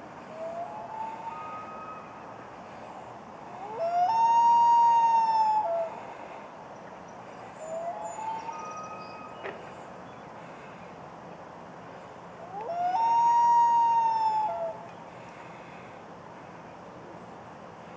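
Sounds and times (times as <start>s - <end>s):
loon wailing: 12.5s - 14.9s.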